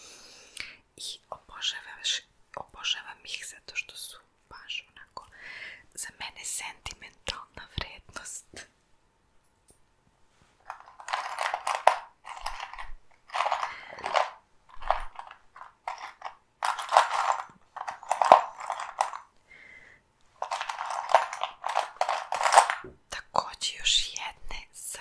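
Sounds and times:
crinkly packaging rustling: 10.6s - 19.3s, 20.4s - 22.9s.

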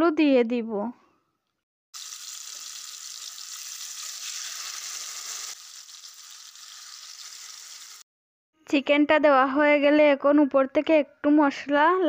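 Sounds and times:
chicken sizzling in frying pan: 2.0s - 8.1s.

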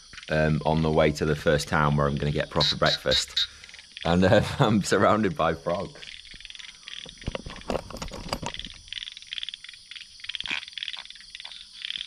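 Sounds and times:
steady high hiss: 0.0s - 7.2s
frogs croaking: 0.0s - 12.0s.

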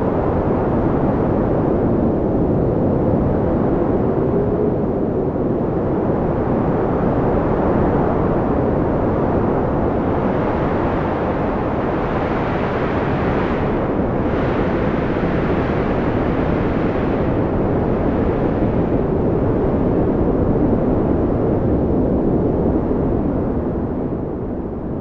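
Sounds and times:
storm wind buffeting microphone: 0.0s - 25.0s.

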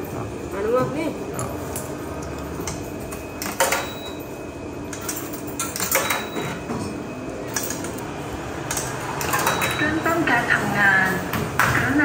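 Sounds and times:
laundromat background noise: 0.0s - 12.0s
coins clinking into a slot: 3.4s - 4.2s, 4.9s - 6.6s, 7.5s - 8.0s, 8.7s - 9.9s.

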